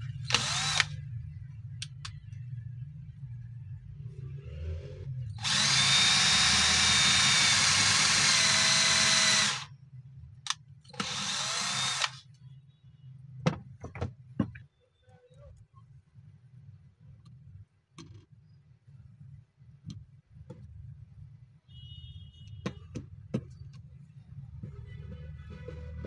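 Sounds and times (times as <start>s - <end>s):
cordless drill boring into wood: 0.3s - 0.9s, 5.4s - 9.7s, 11.0s - 12.2s.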